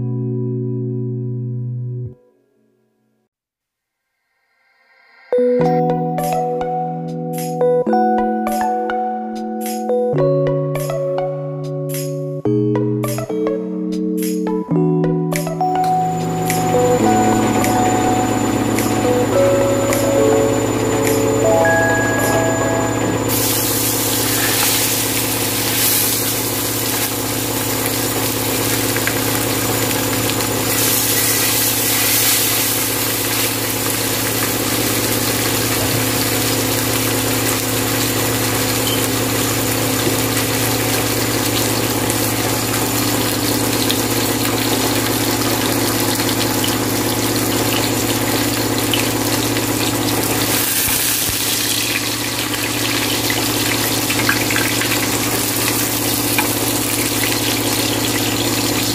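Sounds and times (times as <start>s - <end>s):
fish sizzling in oil: 23.3s - 58.9s.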